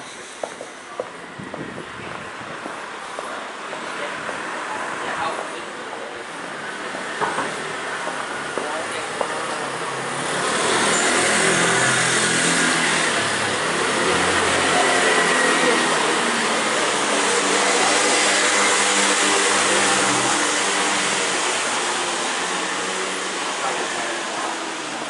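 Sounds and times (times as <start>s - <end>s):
motor scooter engine passing: 9.6s - 24.1s.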